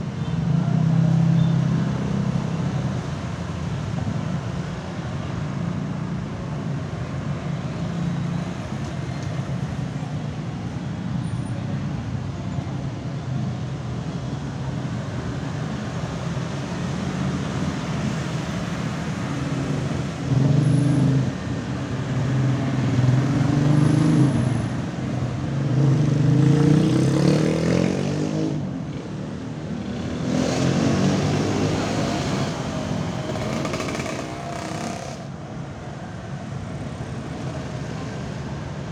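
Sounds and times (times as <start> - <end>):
steady traffic hum: 0.0 - 38.9
motorbikes and cars driving past: 14.3 - 38.9.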